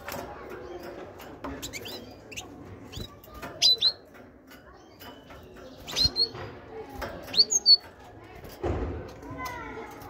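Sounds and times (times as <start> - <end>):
soft thumps in cage: 8.4 - 9.2.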